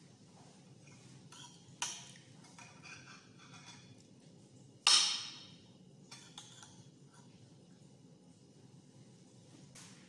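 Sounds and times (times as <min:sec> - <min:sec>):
cutlery scraping on a plate: 0:00.8 - 0:04.1, 0:06.1 - 0:07.4
cutlery clinking on a plate: 0:00.9 - 0:04.0, 0:06.1 - 0:07.3.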